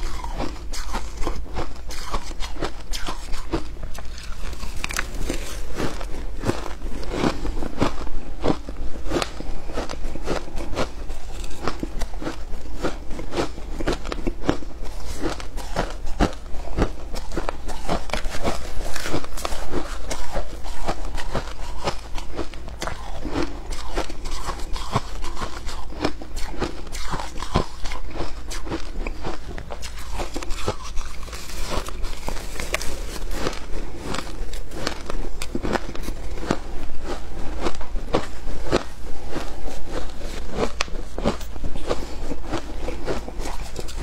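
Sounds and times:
shaved ice crunching when chewed: 0.0s - 44.0s
metal spoon scraping ice: 29.8s - 34.6s.

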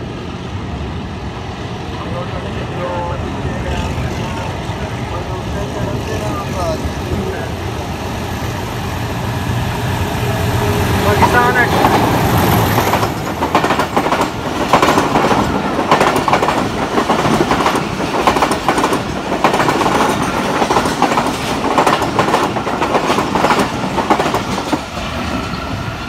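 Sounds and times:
passing train coaches rushing: 0.0s - 26.0s.

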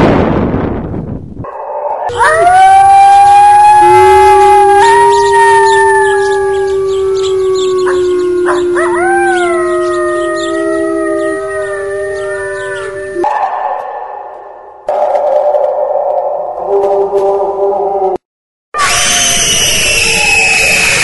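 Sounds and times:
dogs howling together: 1.5s - 13.3s.

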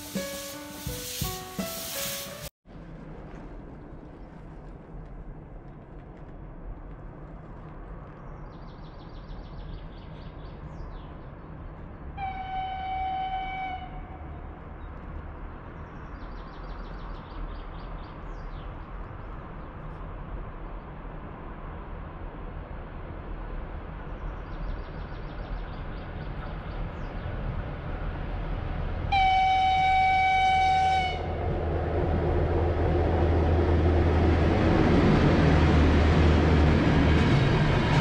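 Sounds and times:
locomotive horn blast: 12.2s - 14.4s, 29.1s - 31.5s.

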